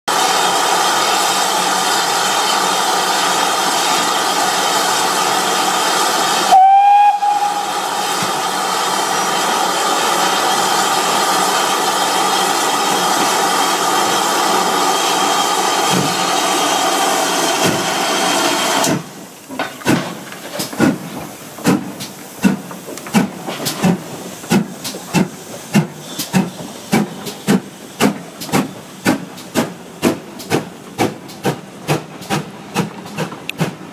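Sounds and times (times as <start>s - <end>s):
steam engine exhaust beats: 0.1s - 33.9s
steam hissing: 0.1s - 33.9s
steam whistle blast: 6.5s - 8.0s.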